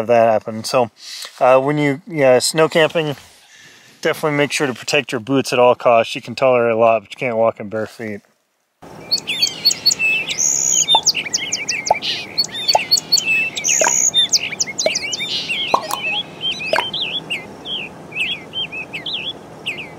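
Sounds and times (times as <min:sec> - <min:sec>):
faint steady hiss: 0:00.0 - 0:09.2
songbirds chirping and singing: 0:08.9 - 0:19.9.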